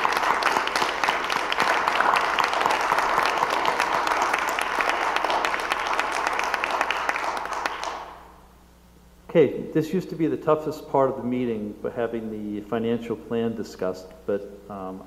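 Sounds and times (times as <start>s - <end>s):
congregation applauding: 0.0s - 8.4s.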